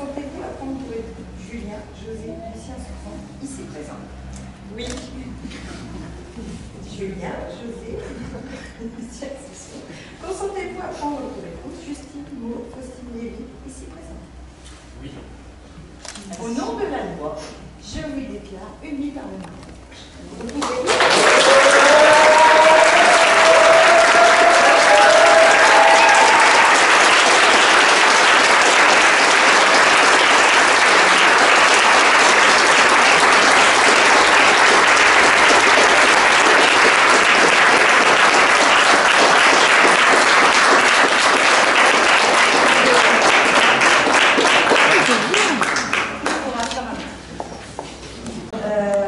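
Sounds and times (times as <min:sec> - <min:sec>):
crowd applauding: 0:20.6 - 0:46.6.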